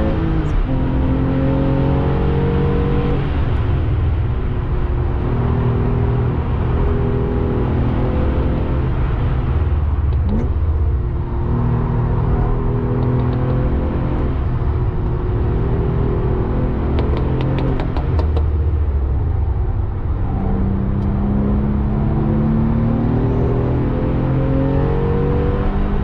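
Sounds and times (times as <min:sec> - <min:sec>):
car engine from inside cabin: 0:00.0 - 0:26.0.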